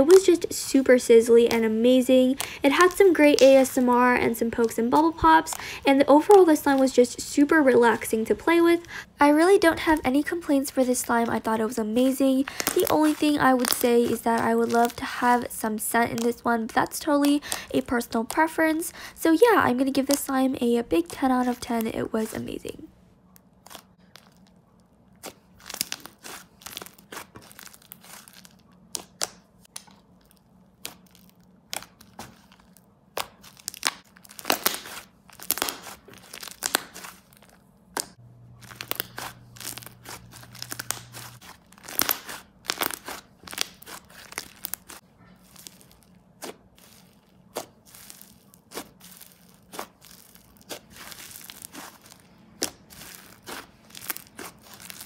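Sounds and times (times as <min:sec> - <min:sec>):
slime being squished: 0:12.1 - 0:17.6, 0:23.6 - 0:55.0.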